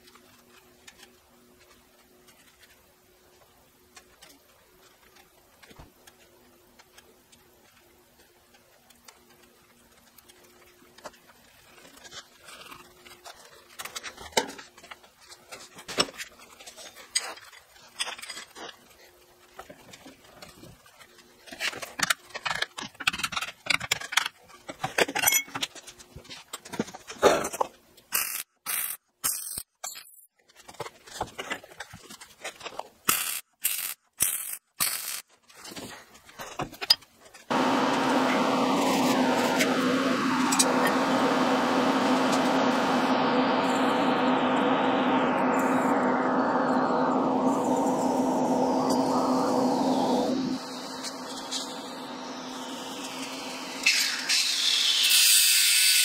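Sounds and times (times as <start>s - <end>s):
faint steady hum: 37.5s - 54.9s.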